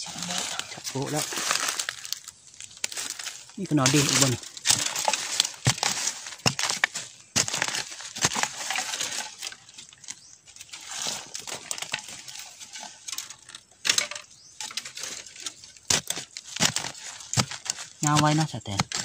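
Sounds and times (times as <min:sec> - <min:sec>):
dirt crumbling and scattering: 0:00.0 - 0:19.0
blade chopping into soil: 0:02.8 - 0:09.0, 0:15.9 - 0:19.0.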